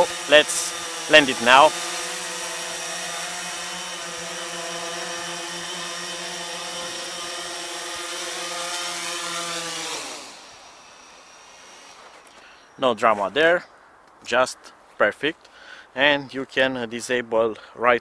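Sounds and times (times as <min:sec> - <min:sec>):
drone propellers humming: 0:00.0 - 0:12.8.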